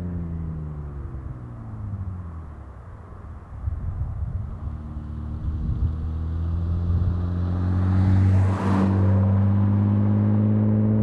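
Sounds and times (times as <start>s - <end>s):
car exhaust accelerating past: 4.5s - 11.0s.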